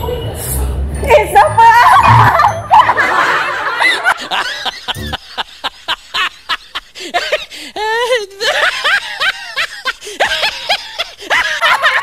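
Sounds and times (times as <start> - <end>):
person snickering laugh: 3.8 - 12.0
dense voices: 4.9 - 5.3.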